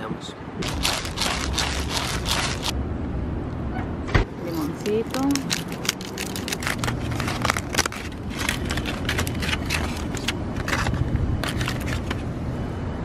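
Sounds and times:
aluminium foil crinkling: 0.6 - 2.8, 4.8 - 12.2.

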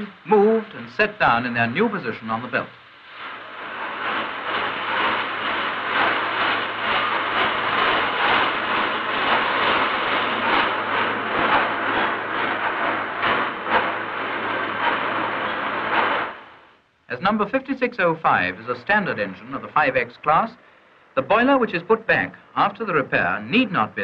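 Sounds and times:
steady low hum: 0.0 - 24.0
heavy machinery metallic clatter: 3.2 - 16.8.

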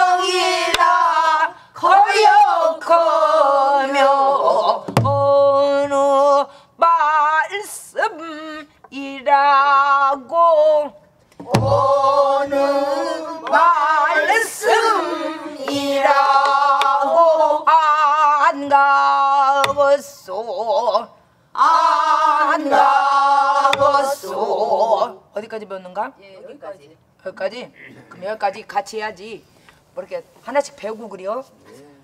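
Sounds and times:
person singing with wide vibrato: 0.0 - 25.3
barrel drum strokes: 4.9 - 6.0, 11.4 - 12.6.

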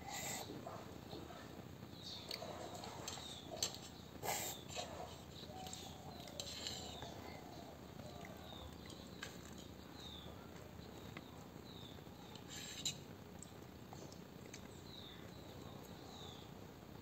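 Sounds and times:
child chewing: 2.3 - 11.2, 12.2 - 16.0.

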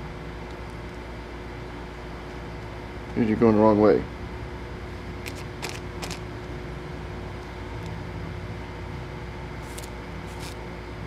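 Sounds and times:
background hum and hiss: 0.0 - 11.0
plastic bag crinkling: 5.3 - 6.2, 9.6 - 10.6.

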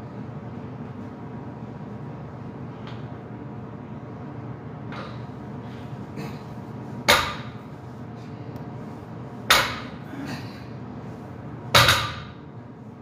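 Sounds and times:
barbell clanking on rubber mat: 11.8 - 12.4.

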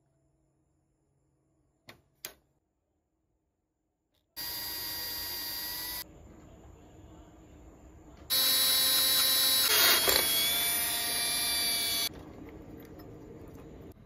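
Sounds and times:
cordless drill cutting metal: 4.4 - 6.0, 8.3 - 12.1.

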